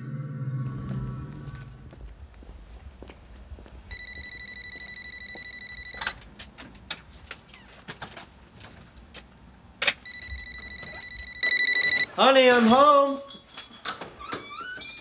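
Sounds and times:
electronic alarm buzzer beeping: 0:03.9 - 0:06.1, 0:10.0 - 0:15.0.

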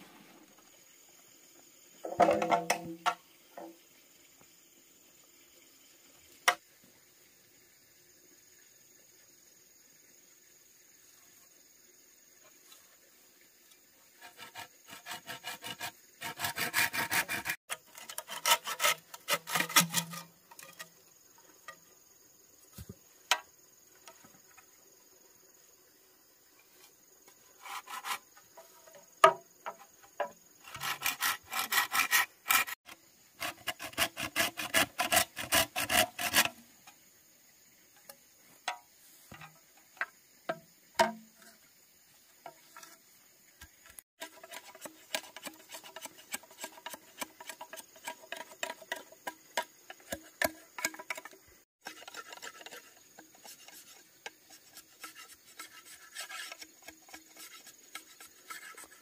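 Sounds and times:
hand saw cutting bamboo: 0:14.2 - 0:20.8, 0:27.6 - 0:28.3, 0:30.6 - 0:36.6, 0:44.2 - 0:59.0.

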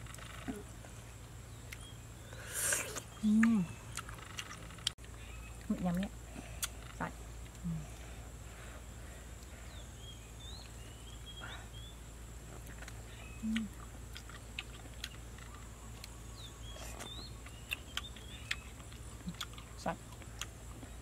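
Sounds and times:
clicks of people chewing: 0:02.6 - 0:07.9, 0:12.5 - 0:21.0.

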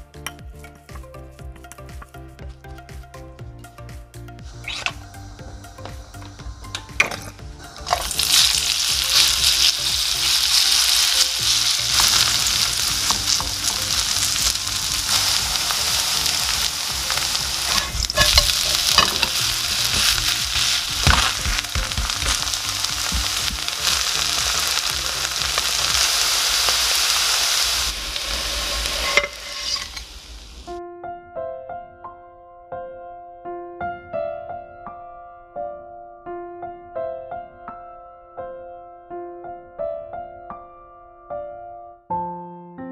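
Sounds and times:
pancake sizzling in oil: 0:04.5 - 0:30.8.

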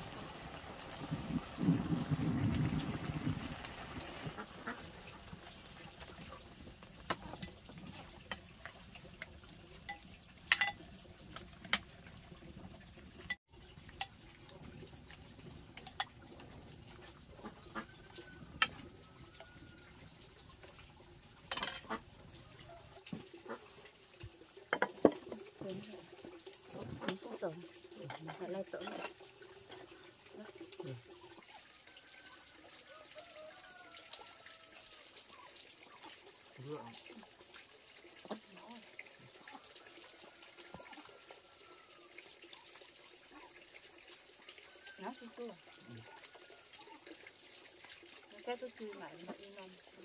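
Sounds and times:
soup bubbling in pan: 0:00.0 - 0:32.0
ladle clinking and scraping: 0:09.8 - 0:10.9, 0:21.5 - 0:22.0, 0:28.0 - 0:30.0.

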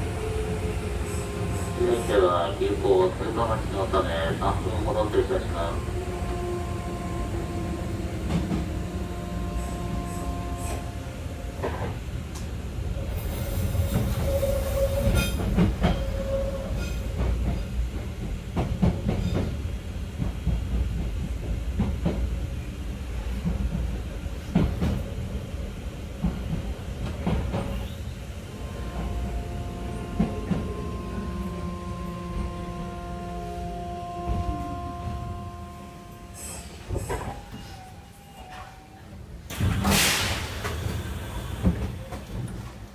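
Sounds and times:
electric train hum: 0:00.0 - 0:42.9
train wheel running noise: 0:28.5 - 0:37.7.

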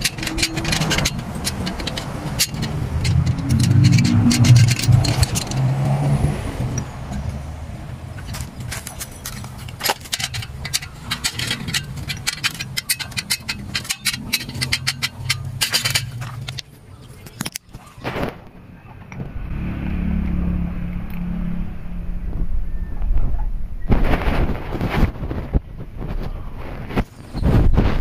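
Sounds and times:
metal clicks and clanks: 0:00.0 - 0:07.4, 0:08.1 - 0:18.1
steady low rumble: 0:00.0 - 0:08.6, 0:18.4 - 0:27.0
steady low hum: 0:18.6 - 0:26.0.

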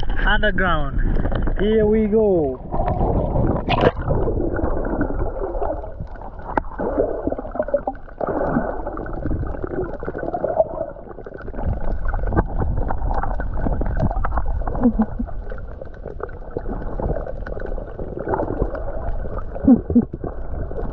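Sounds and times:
underwater rumble of moving water: 0:00.0 - 0:20.9
water gurgling and bubbling: 0:00.9 - 0:20.9.

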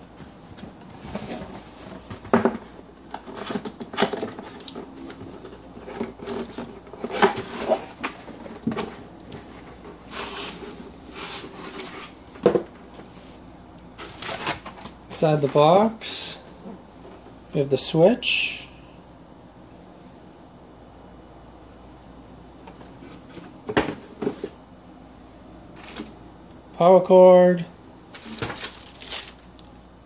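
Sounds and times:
cardboard flaps scraping: 0:00.3 - 0:12.2.

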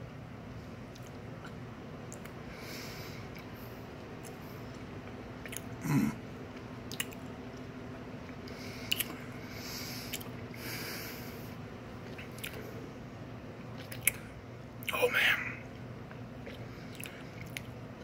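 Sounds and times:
breaths: 0:02.5 - 0:04.6, 0:08.5 - 0:11.6
wet lip smacks: 0:05.4 - 0:05.8, 0:06.9 - 0:07.7, 0:08.9 - 0:09.2, 0:10.1 - 0:10.4
man's low vocal sound: 0:05.8 - 0:06.2.

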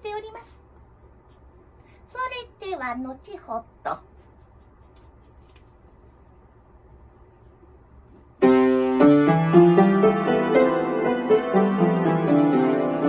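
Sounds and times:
upright piano playing: 0:08.4 - 0:13.0.

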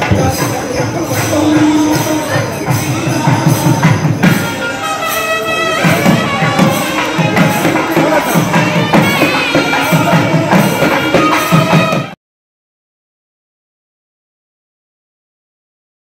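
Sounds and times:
steady drum beats: 0:00.0 - 0:12.2
reed pipes playing melody: 0:01.1 - 0:12.2.

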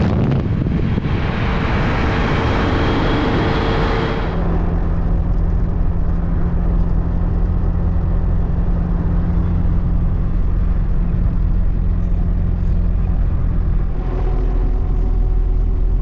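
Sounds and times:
car engine hum inside car: 0:00.0 - 0:16.0
road and tyre noise: 0:00.0 - 0:16.0.

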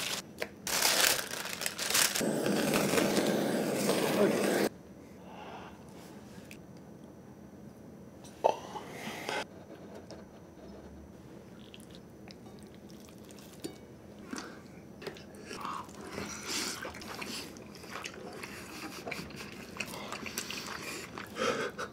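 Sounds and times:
wet chewing sounds: 0:11.6 - 0:21.4.

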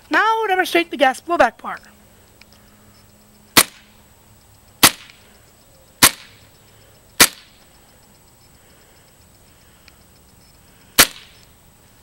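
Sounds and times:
airsoft gun shots: 0:03.6 - 0:03.9, 0:04.8 - 0:05.2, 0:06.0 - 0:06.4, 0:07.2 - 0:07.6, 0:11.0 - 0:11.4.

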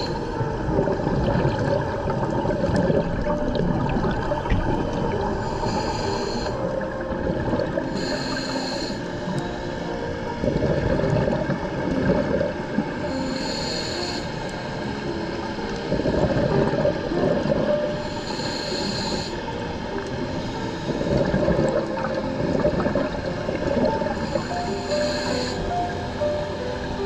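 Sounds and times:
scuba regulator breathing hiss: 0:00.0 - 0:00.4, 0:05.3 - 0:06.8, 0:07.8 - 0:09.9, 0:13.0 - 0:15.0, 0:18.0 - 0:19.7, 0:20.3 - 0:21.5, 0:24.1 - 0:27.0
exhaled bubbles underwater: 0:00.0 - 0:08.5, 0:09.3 - 0:13.2, 0:14.5 - 0:18.2, 0:19.9 - 0:26.1.

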